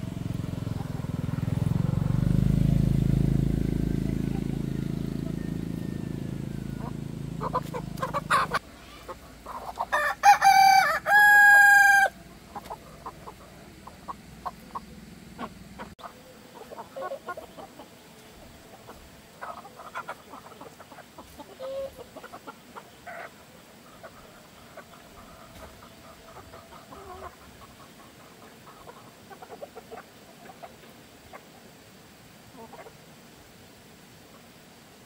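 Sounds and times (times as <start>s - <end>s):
chickens clucking: 0.0s - 1.8s, 2.4s - 33.3s
rooster crowing: 3.8s - 8.6s, 9.9s - 12.2s.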